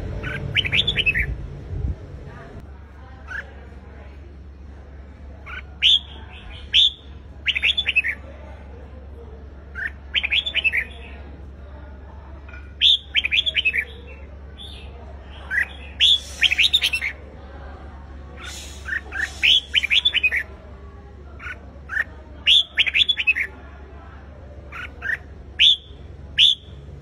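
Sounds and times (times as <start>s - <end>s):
bird singing whistled phrases: 0.3s - 1.3s, 5.8s - 8.2s, 12.8s - 14.8s, 15.5s - 17.2s, 18.4s - 20.5s, 25.0s - 26.8s.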